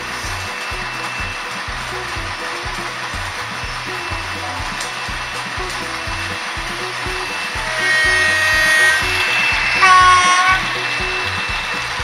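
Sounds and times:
model train whirring: 0:00.0 - 0:12.0
whining tones: 0:00.0 - 0:12.0.

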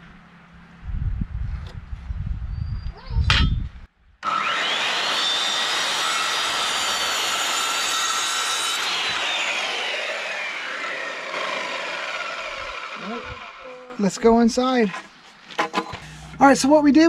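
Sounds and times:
circular saw cutting wood: 0:04.2 - 0:14.9.

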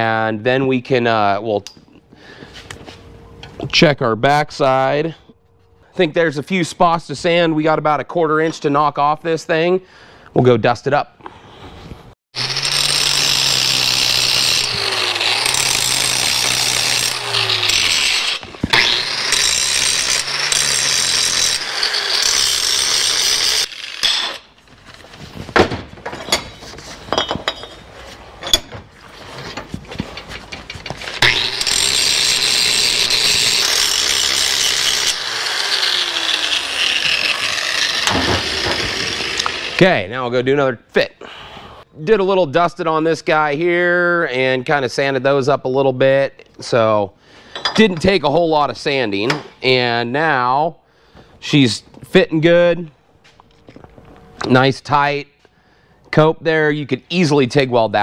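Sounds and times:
angle grinder grinding steel: 0:12.4 - 0:24.6, 0:30.8 - 0:39.8
metal clanks and knocks: 0:25.6 - 0:31.2.

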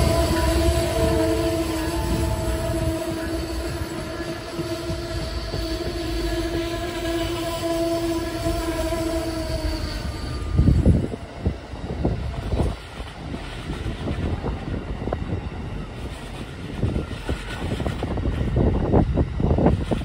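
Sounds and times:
held pitched tone: 0:00.0 - 0:11.1
passenger train rushing past: 0:00.0 - 0:20.0.

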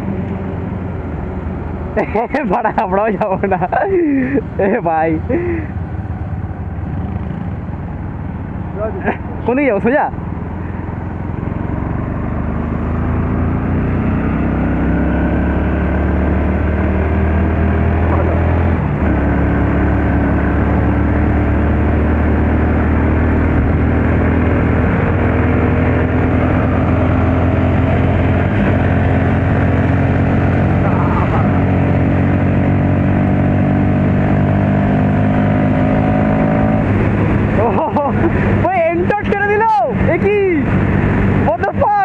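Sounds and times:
motorcycle engine accelerating: 0:00.0 - 0:42.0.

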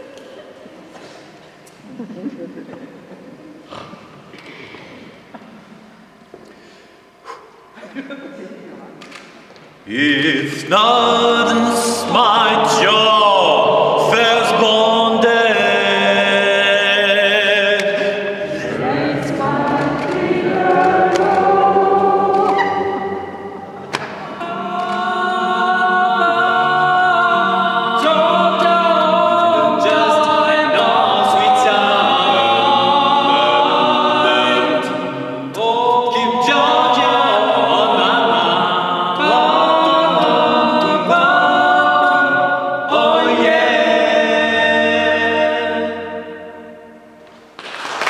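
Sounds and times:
male trio singing a cappella: 0:09.9 - 0:23.0, 0:24.2 - 0:46.9.

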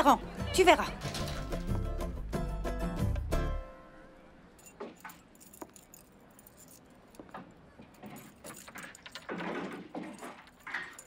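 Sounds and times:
keys jingling at a door lock: 0:04.6 - 0:11.0.

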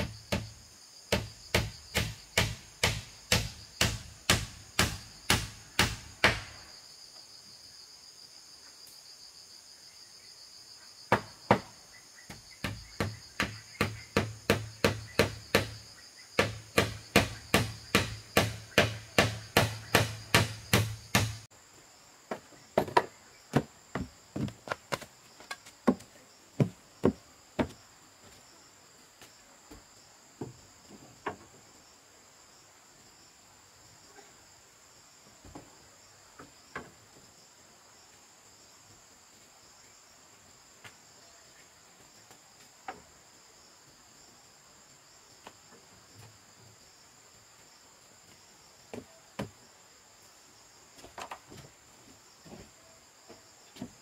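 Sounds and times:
insects chorus: 0:00.0 - 0:54.0.

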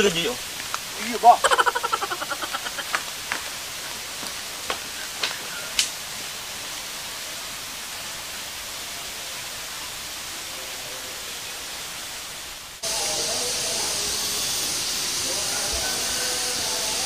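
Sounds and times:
steady hiss: 0:00.0 - 0:17.0
bamboo slats clacking under footsteps: 0:02.8 - 0:06.0.

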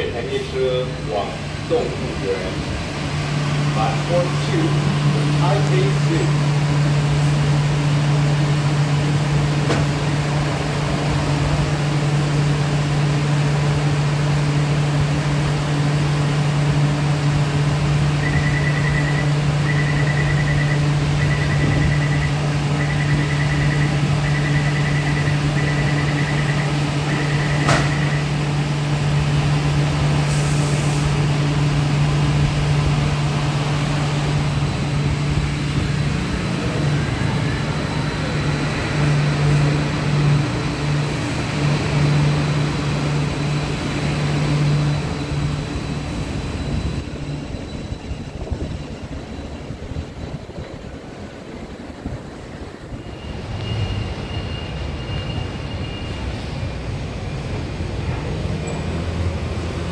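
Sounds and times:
train equipment humming: 0:00.0 - 0:59.9
door-closing warning beeps: 0:18.2 - 0:28.4.

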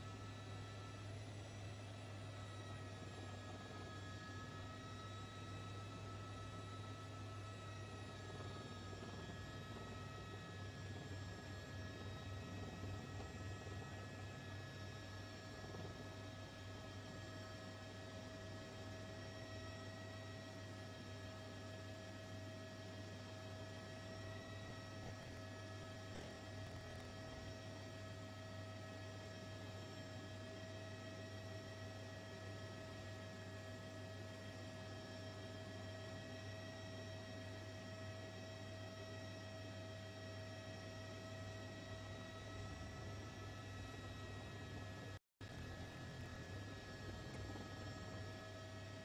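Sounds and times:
low electrical hum: 0:00.0 - 0:49.0.

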